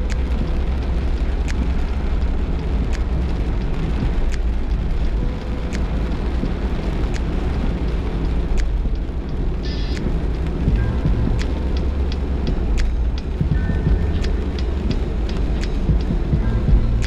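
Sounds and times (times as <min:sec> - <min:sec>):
heavy rain: 0:00.0 - 0:17.0
wet tyres on road: 0:00.0 - 0:17.0
windshield wipers sweeping: 0:00.0 - 0:17.0.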